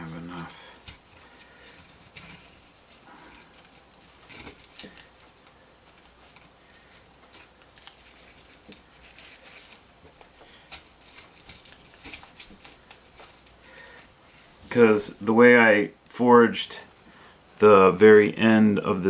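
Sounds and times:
twine rustling: 0.0 - 19.0.

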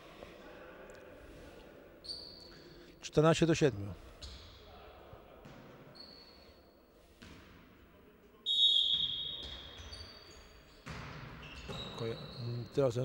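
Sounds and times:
referee's whistle: 8.4 - 10.0.

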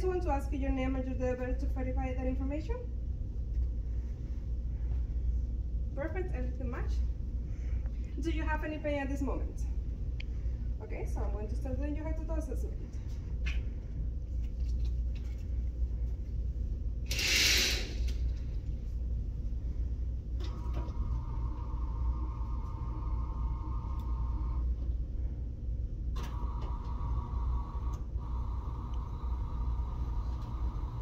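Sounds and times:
low room hum: 0.0 - 31.0
bed motor whining: 20.4 - 24.8, 26.2 - 31.0.

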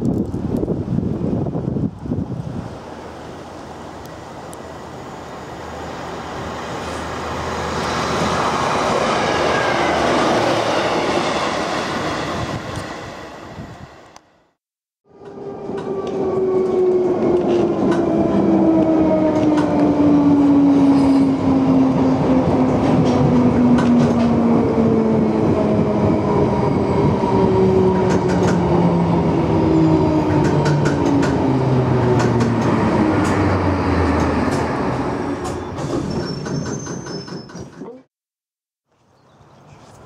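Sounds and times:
train running rumble: 15.2 - 38.0
wheels clicking over rail joints: 30.2 - 38.0.

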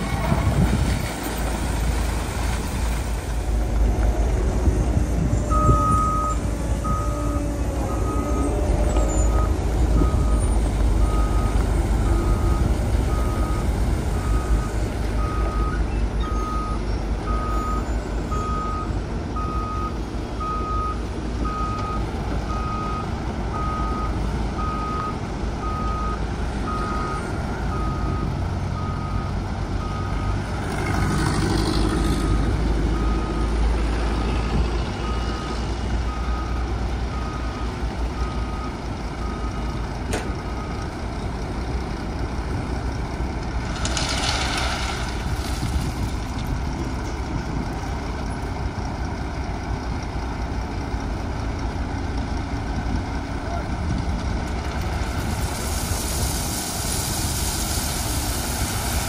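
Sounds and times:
diesel engine running: 0.0 - 59.0
truck reversing alarm beeping: 4.7 - 30.5, 31.8 - 41.9.

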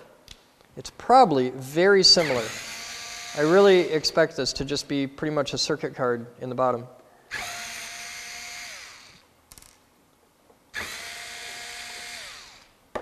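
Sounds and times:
cordless drill motor whine: 2.2 - 3.6, 7.3 - 9.2, 10.8 - 12.7.

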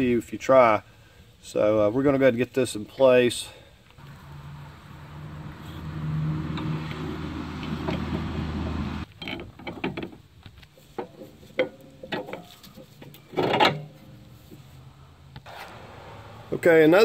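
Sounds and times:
metal clicks and knocks: 9.1 - 14.0.

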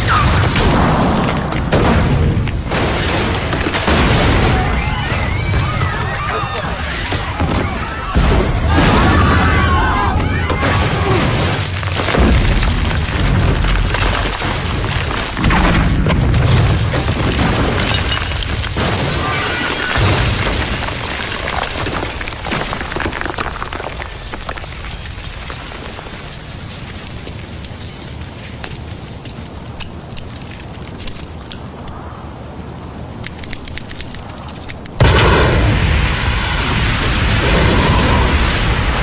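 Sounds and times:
explosion rumble: 6.8 - 25.6, 35.0 - 39.0
deep explosion booms: 10.6 - 18.0, 35.0 - 39.0.

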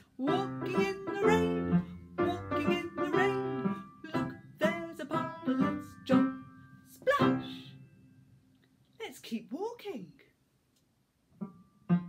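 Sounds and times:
woman singing: 0.2 - 7.8.

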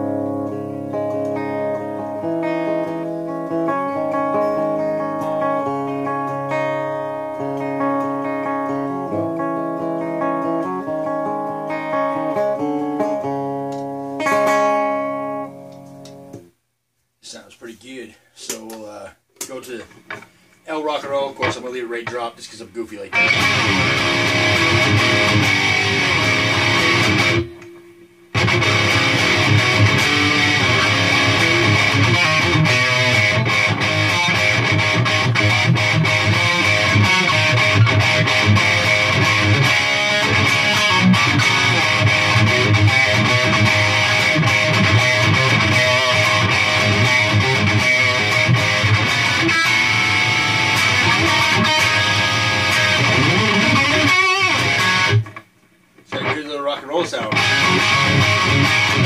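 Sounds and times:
electric guitar riffs: 0.0 - 16.6, 20.0 - 59.0.

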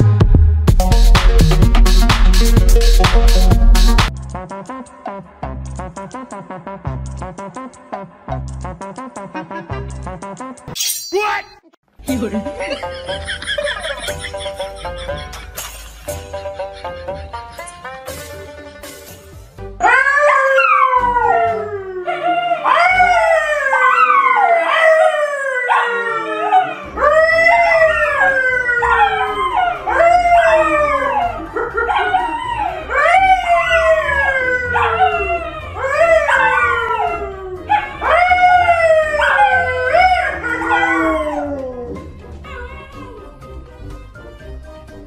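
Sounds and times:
dogs howling: 19.8 - 43.4
man howling: 19.8 - 43.4.

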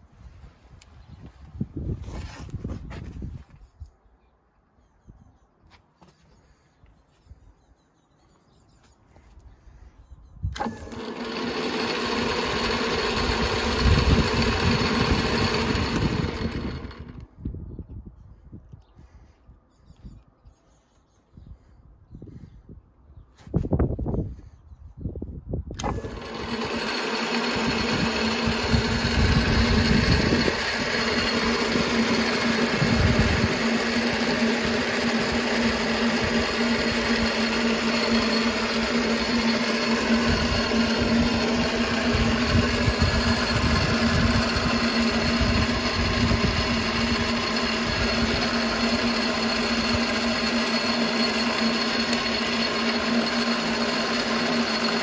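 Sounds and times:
lathe motor whirring: 10.5 - 17.3, 25.8 - 55.0.

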